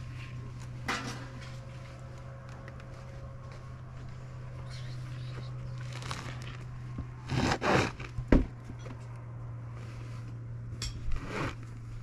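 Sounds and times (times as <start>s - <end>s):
steady low hum: 0.0s - 12.0s
rug rustling and scraping: 5.8s - 8.2s, 11.0s - 12.0s.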